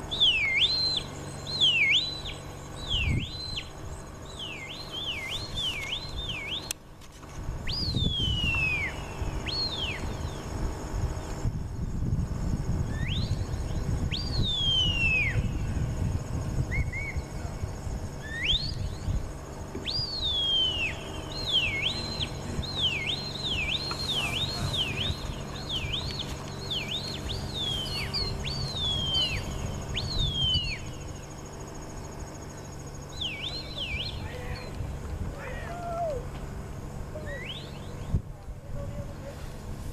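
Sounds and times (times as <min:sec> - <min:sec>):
sharp herding whistles: 0:00.0 - 0:06.8, 0:07.6 - 0:10.5, 0:12.8 - 0:15.8, 0:16.4 - 0:31.4, 0:32.5 - 0:34.8, 0:37.2 - 0:38.2
low uneven rumble: 0:00.9 - 0:39.9.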